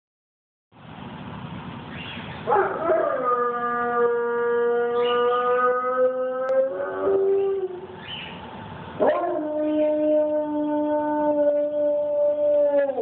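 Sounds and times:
dog howling: 2.5s - 7.9s, 9.0s - 13.0s.

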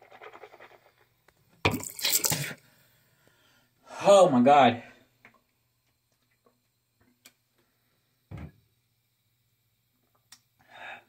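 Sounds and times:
muffled thump: 8.3s - 8.6s.

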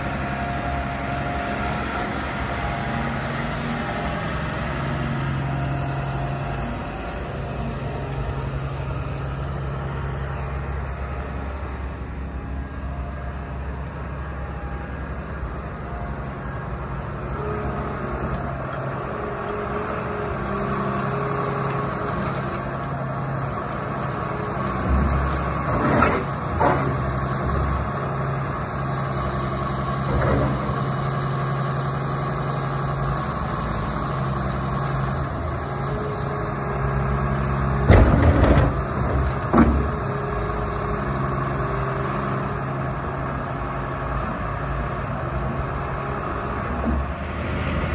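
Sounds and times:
excavator diesel engine running: 0.0s - 47.9s
loud clunks: 37.8s - 40.0s.

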